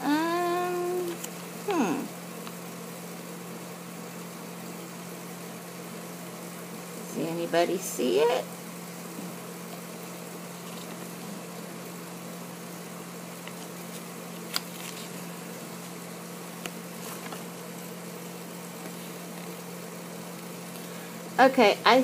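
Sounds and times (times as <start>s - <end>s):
low room hum and hiss: 0.0s - 22.0s
faint paper clicks: 13.4s - 15.2s.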